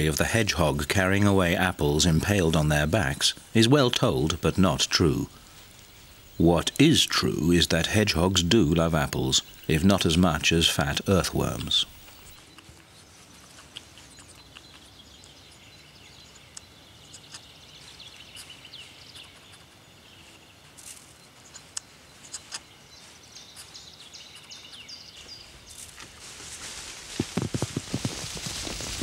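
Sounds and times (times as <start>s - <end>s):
bird chirps: 0.0s - 26.0s
soft outdoor hiss: 0.0s - 29.0s
small clicks and crunches: 25.8s - 29.0s.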